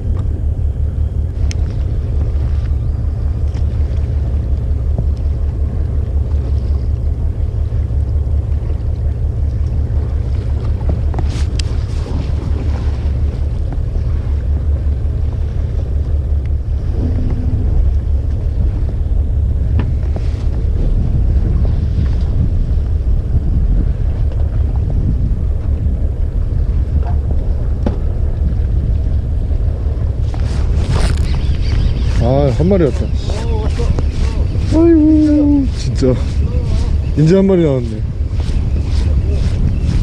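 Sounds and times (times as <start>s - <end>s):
wind buffeting microphone: 0.0s - 40.0s
faint clicks: 1.4s - 1.9s, 11.5s - 11.7s.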